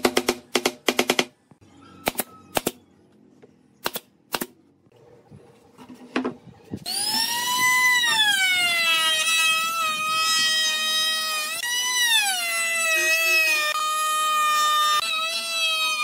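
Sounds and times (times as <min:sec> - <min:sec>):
trim router whining: 0:06.9 - 0:16.0.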